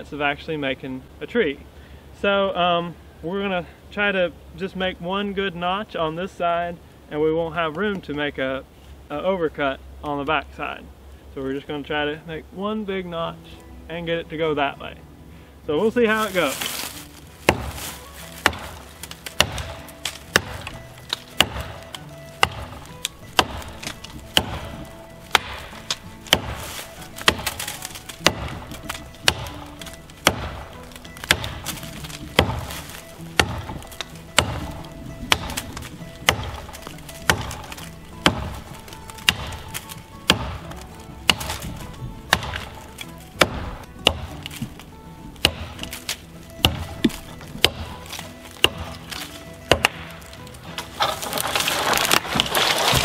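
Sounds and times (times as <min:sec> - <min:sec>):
axe chopping into tree trunk: 0:16.1 - 0:53.0.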